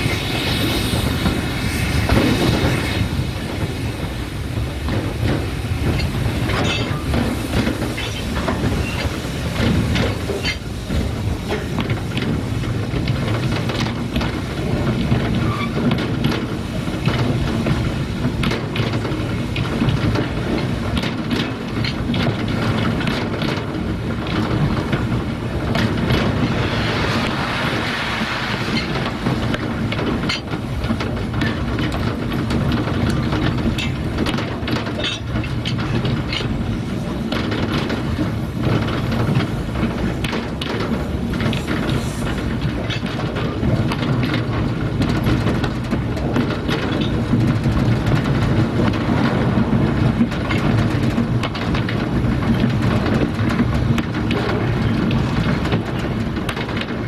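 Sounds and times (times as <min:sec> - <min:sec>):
rushing hiss: 0:00.0 - 0:14.5, 0:25.4 - 0:30.3, 0:41.0 - 0:42.6
steam train rumbling: 0:00.0 - 0:57.0
wheels clattering over rail joints: 0:00.0 - 0:57.0.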